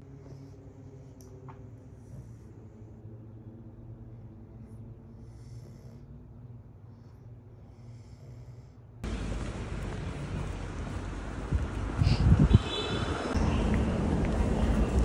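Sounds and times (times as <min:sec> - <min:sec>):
loud outdoor street noise: 0:09.0 - 0:15.0
wind buffeting microphone: 0:09.1 - 0:15.0.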